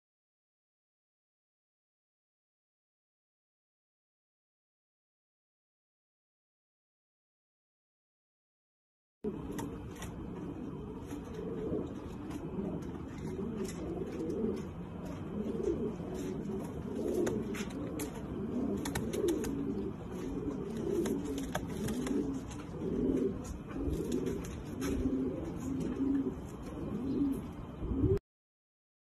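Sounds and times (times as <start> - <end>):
pigeons cooing: 9.3 - 28.2.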